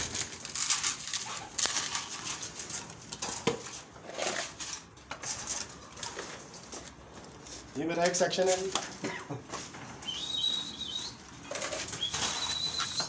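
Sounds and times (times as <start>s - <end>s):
plastic feeders rattling: 10.8s - 13.0s.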